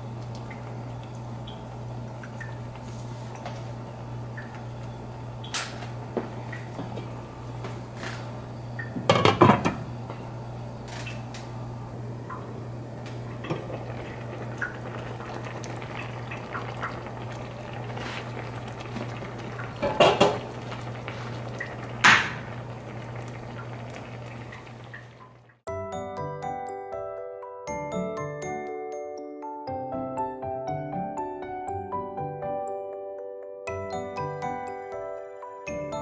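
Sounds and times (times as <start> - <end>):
broth simmering in a pan: 0.0 - 6.8, 12.7 - 25.6
glass lid clattering on pan: 19.8 - 20.5.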